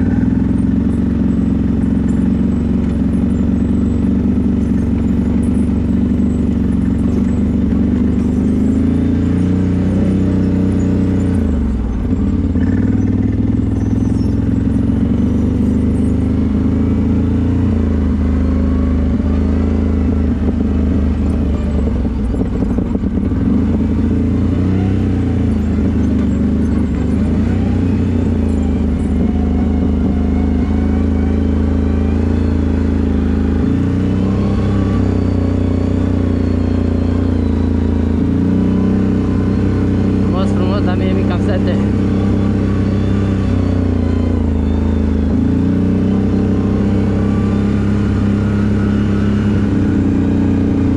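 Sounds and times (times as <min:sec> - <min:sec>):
atv engine revving: 0:00.0 - 0:50.9.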